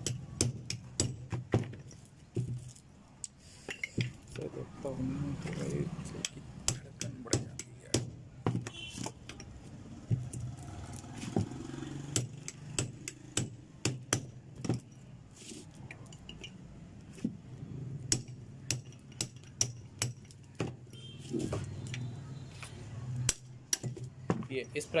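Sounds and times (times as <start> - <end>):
hammer tapping steel rod: 6.2 - 8.2.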